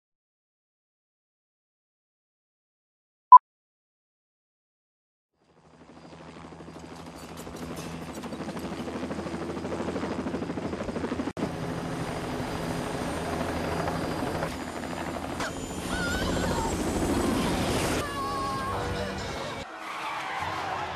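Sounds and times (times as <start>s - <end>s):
helicopter rotor chop: 5.5s - 18.0s.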